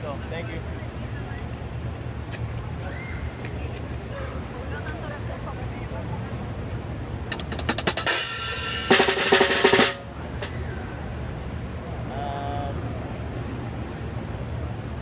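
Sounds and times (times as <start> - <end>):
drum kit fast fill: 7.3 - 10.1.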